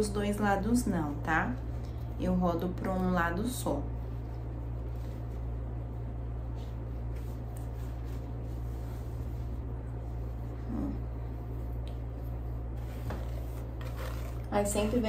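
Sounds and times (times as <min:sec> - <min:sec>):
low background hum: 0:00.0 - 0:15.0
fabric rustling: 0:12.3 - 0:15.0.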